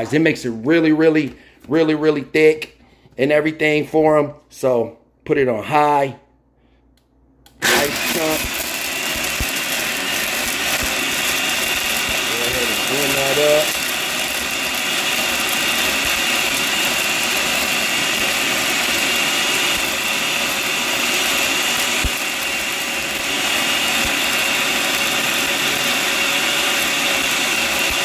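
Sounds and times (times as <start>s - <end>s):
blender motor whirring: 7.5s - 28.0s.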